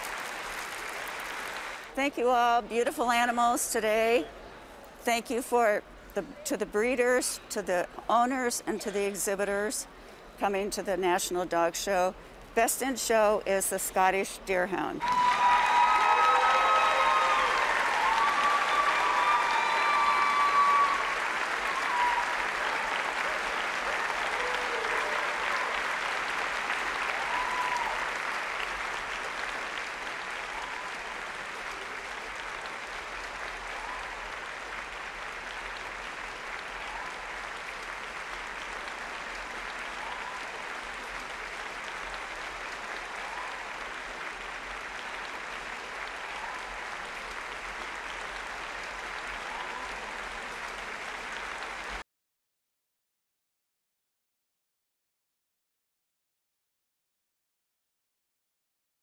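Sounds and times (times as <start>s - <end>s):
audience applause: 0.0s - 2.0s, 15.0s - 52.0s.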